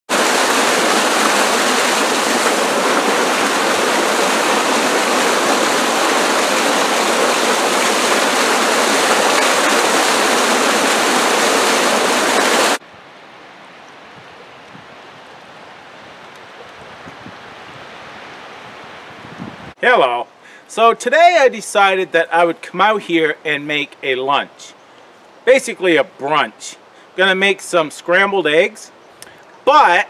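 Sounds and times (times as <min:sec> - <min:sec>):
waterfall rushing over rocks: 0:00.1 - 0:12.8
faint creek flow: 0:00.1 - 0:16.9, 0:19.8 - 0:30.0.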